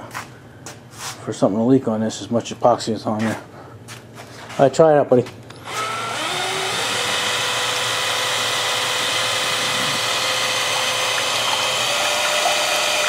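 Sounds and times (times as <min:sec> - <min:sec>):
hand drill whining: 0:05.5 - 0:13.0.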